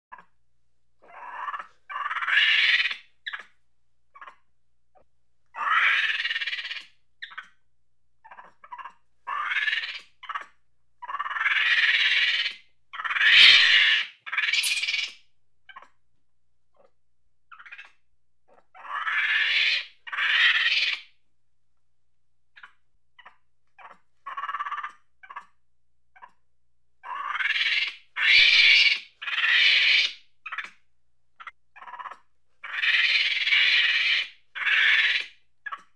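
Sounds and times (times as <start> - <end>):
monkey chattering angrily: 1.0 - 3.4, 5.6 - 7.5, 8.3 - 15.9, 27.0 - 30.7, 31.4 - 35.9
monkey chirps: 1.0 - 3.5, 5.6 - 7.6, 8.2 - 16.0, 27.0 - 30.8.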